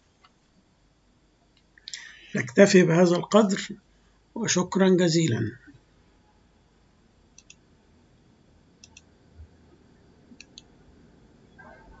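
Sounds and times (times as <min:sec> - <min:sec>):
computer mouse clicking: 0:07.4 - 0:07.6, 0:08.8 - 0:09.1, 0:10.4 - 0:10.7.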